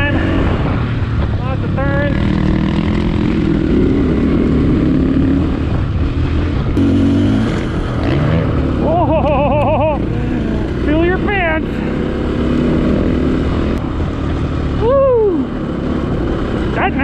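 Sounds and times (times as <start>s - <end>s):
motorcycle engine under load: 0.8s - 14.8s.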